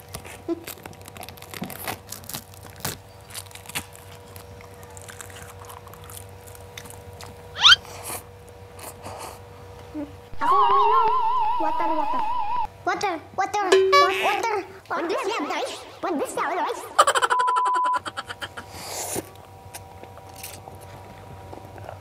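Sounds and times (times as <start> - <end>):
children chewing crunchy seaweed: 0.0 - 9.5, 18.5 - 22.0
faint steady hum: 2.2 - 22.0
brief rising squeak: 7.6 - 7.8.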